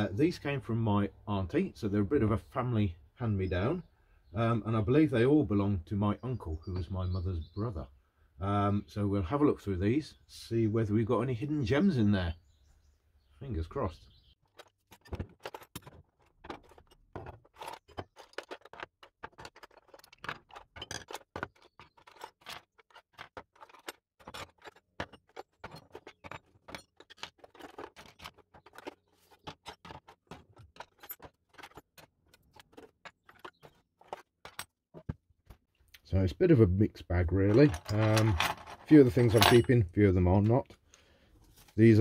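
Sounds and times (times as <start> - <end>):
hand tools clinking on wooden bench: 14.5 - 35.2, 37.4 - 39.9.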